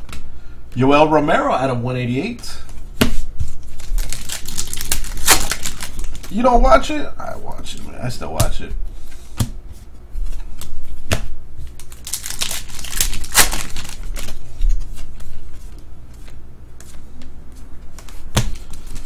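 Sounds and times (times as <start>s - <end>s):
trading cards clicking and rustling: 3.8s - 6.4s, 10.2s - 15.1s.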